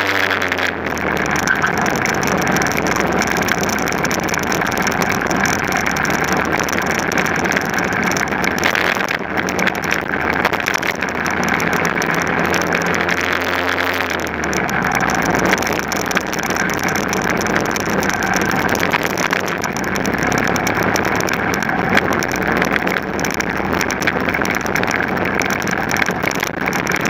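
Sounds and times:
kart engine at high revs: 0.0s - 27.0s
tyres on tarmac: 0.0s - 27.0s.

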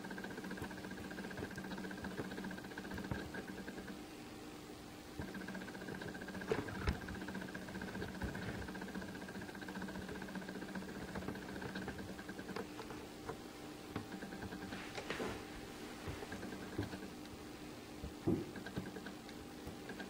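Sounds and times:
appliance humming: 0.0s - 20.0s
faint clicks and taps: 9.8s - 15.4s, 16.0s - 17.4s, 18.0s - 20.0s.

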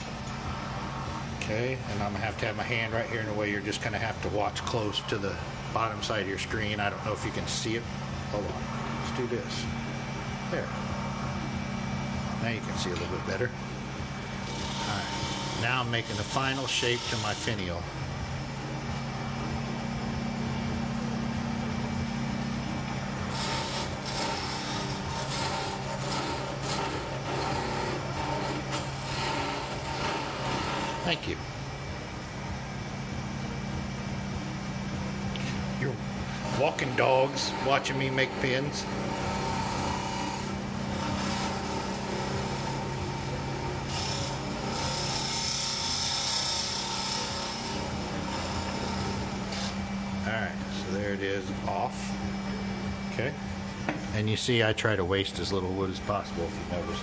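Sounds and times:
lathe motor humming: 0.0s - 57.0s
blade cutting spinning wood: 14.3s - 17.7s, 23.1s - 31.4s, 35.9s - 49.9s
turning tool scraping wood: 14.4s - 17.7s, 23.2s - 31.3s, 36.3s - 43.2s, 43.8s - 49.8s.

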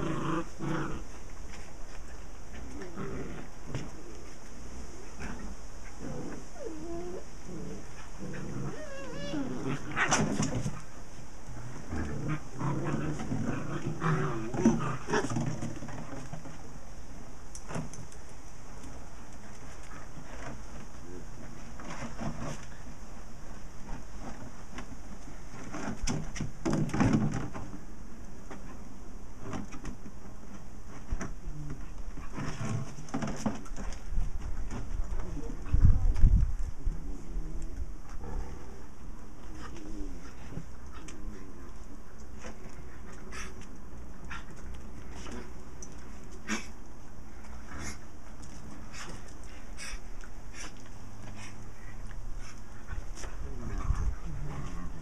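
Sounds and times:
puppies growling and grunting: 0.0s - 1.2s, 2.6s - 4.1s, 5.2s - 10.8s, 11.5s - 16.2s, 52.5s - 55.0s
puppies whining: 6.3s - 7.8s, 8.4s - 9.9s.

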